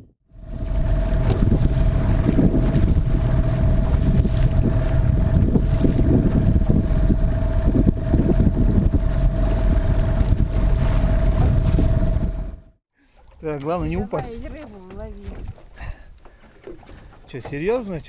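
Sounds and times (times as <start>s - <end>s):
wind buffeting microphone: 0.0s - 12.8s.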